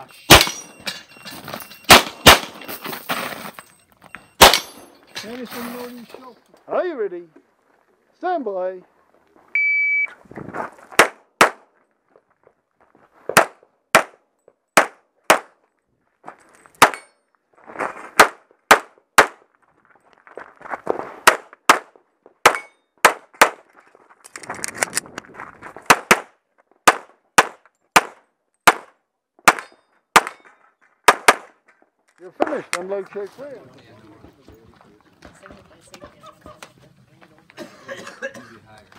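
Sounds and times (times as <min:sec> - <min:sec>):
pistol shots: 0:00.3 - 0:00.7, 0:01.9 - 0:02.6, 0:04.4 - 0:04.8, 0:25.9 - 0:30.4.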